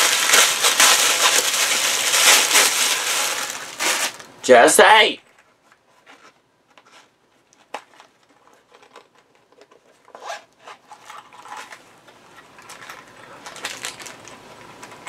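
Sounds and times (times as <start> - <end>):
gift wrapping paper tearing: 0.0 - 4.3, 12.8 - 14.3.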